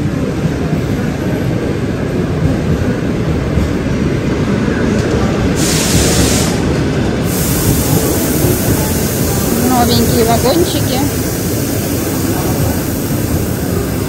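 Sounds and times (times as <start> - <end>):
train low rumble: 0.0 - 14.0
air hiss: 5.6 - 14.0.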